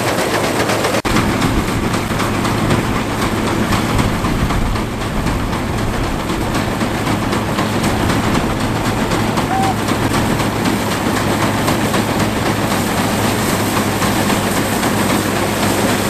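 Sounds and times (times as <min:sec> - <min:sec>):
baler mechanical clatter: 0:00.0 - 0:16.0
tractor engine running: 0:00.0 - 0:16.0.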